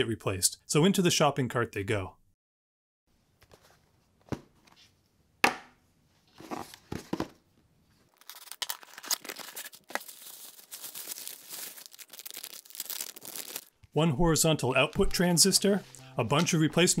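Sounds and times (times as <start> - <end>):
packing tape tearing: 8.1 - 13.7
packing paper crinkling: 8.1 - 13.8.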